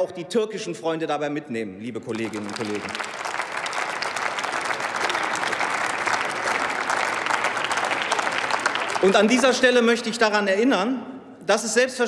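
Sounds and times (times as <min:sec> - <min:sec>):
crowd applauding: 0:02.0 - 0:10.0.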